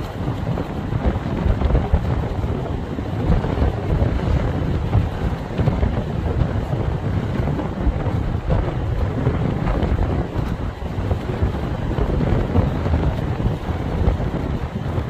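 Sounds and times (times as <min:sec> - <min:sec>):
storm wind buffeting microphone: 0:00.0 - 0:15.0.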